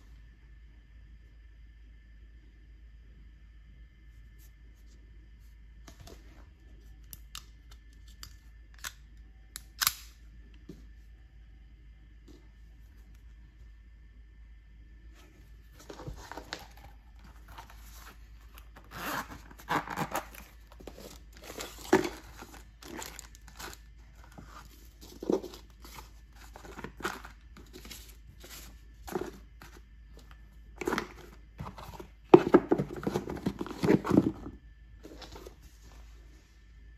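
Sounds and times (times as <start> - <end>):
cardboard scraping: 15.8 - 29.8, 30.8 - 35.9
paper and plastic bag rustling: 19.7 - 29.8, 30.8 - 35.6.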